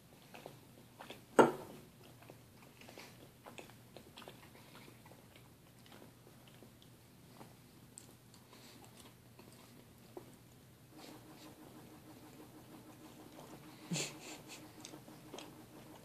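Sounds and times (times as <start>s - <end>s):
person chewing food: 0.0s - 16.0s.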